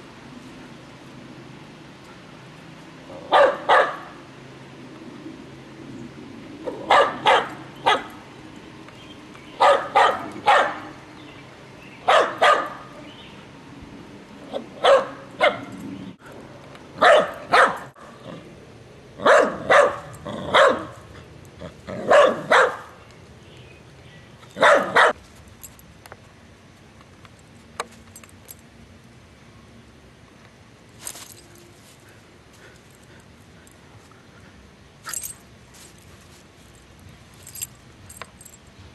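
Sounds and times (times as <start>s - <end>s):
small dog barking: 3.3s - 4.2s, 6.8s - 8.2s, 9.6s - 11.0s, 12.0s - 12.9s, 14.8s - 15.7s, 17.0s - 17.9s, 19.2s - 21.0s, 22.0s - 22.9s, 24.6s - 25.2s.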